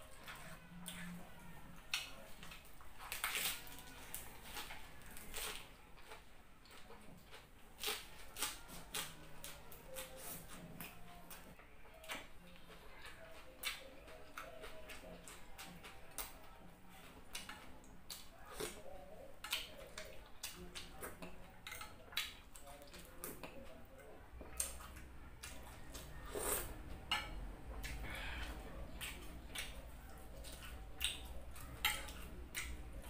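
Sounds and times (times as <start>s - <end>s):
person chewing crunchy food: 1.8s - 16.3s, 24.4s - 33.0s.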